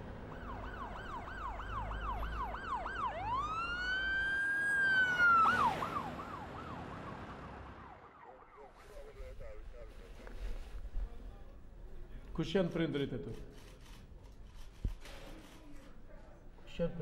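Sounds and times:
police siren: 0:00.2 - 0:09.4.

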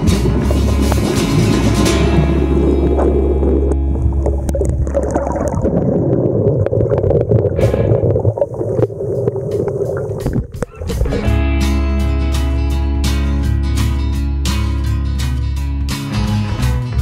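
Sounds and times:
guitar music: 0:00.0 - 0:05.2, 0:10.2 - 0:17.0
muffled underwater rushing: 0:00.0 - 0:12.8
sharp underwater clicks: 0:06.5 - 0:11.3.

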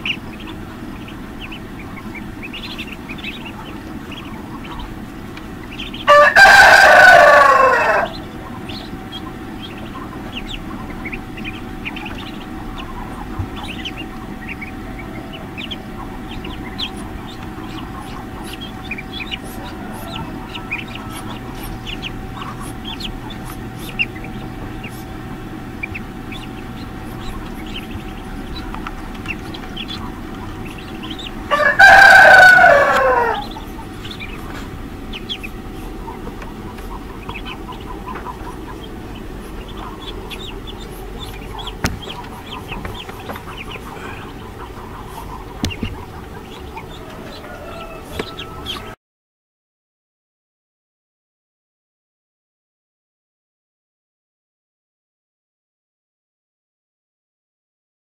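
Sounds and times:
ducklings peeping: 0:00.0 - 0:49.0
steady hum: 0:00.0 - 0:49.0
rooster crowing: 0:06.0 - 0:09.2, 0:13.9 - 0:16.9, 0:18.6 - 0:22.0, 0:30.7 - 0:34.3, 0:46.6 - 0:49.0.

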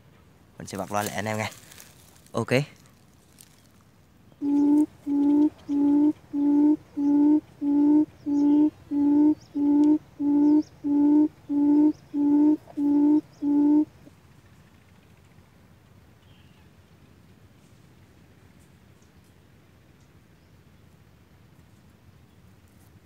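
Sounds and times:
coucal hoots from loudspeaker: 0:04.4 - 0:13.9.

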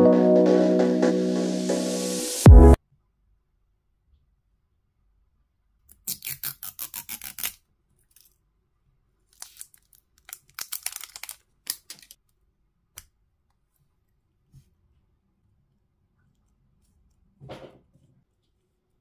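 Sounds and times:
plastic wrap tearing and crinkling: 0:06.1 - 0:08.4, 0:09.3 - 0:12.2.

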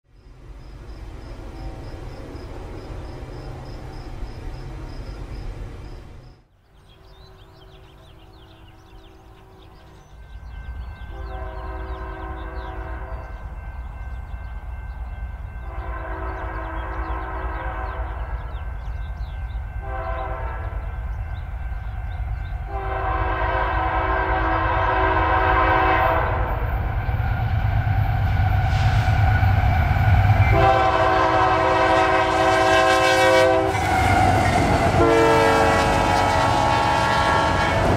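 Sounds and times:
locomotive rumble: 0:00.2 - 0:37.9
locomotive air horn blasts: 0:11.0 - 0:13.4, 0:15.6 - 0:18.5, 0:19.8 - 0:20.8, 0:22.6 - 0:26.7, 0:30.4 - 0:37.9.

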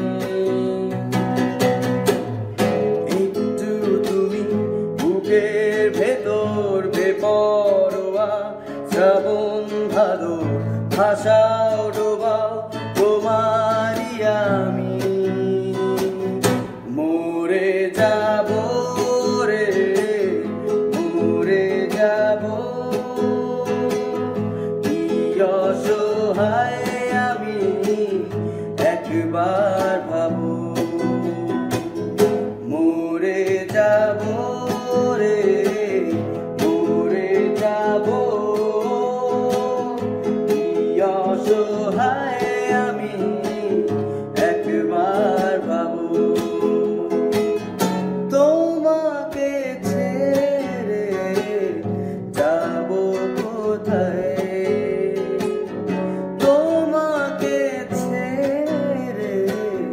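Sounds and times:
acoustic guitar: 0:00.0 - 0:59.9
person singing: 0:00.0 - 0:59.9.

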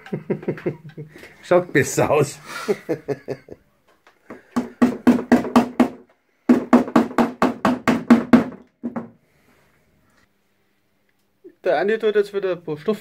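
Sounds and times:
hammer tapping nail into wood: 0:04.3 - 0:09.1.

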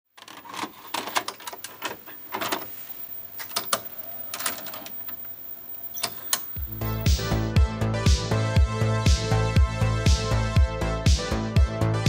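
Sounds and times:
mechanical clicks and clunks: 0:00.1 - 0:07.4.

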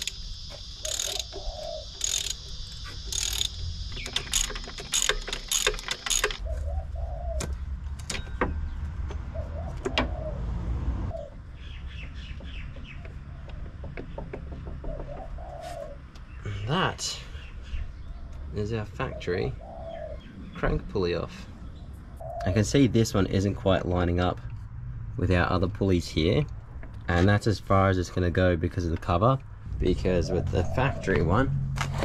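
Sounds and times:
hand tools clicking: 0:00.0 - 0:00.2, 0:00.8 - 0:06.5
dove cooing: 0:00.8 - 0:02.4, 0:06.4 - 0:07.6, 0:09.2 - 0:11.4, 0:14.7 - 0:16.1, 0:19.0 - 0:20.3, 0:30.1 - 0:31.4.

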